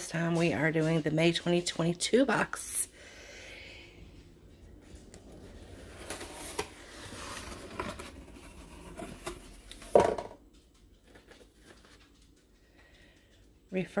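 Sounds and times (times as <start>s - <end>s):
paper rustling: 5.2s - 10.0s, 11.0s - 12.4s.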